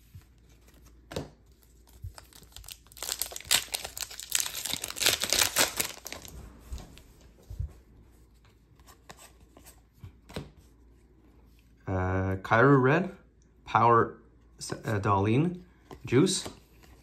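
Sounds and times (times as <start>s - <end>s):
wrapper tearing and crinkling: 1.8s - 6.3s.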